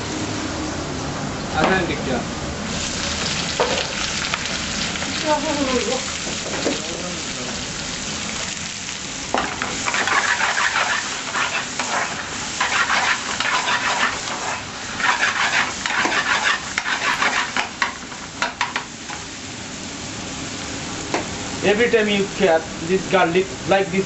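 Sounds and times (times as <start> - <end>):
garlic sizzling in oil: 2.7 - 23.7
metal spoon scraping pan: 9.8 - 17.7.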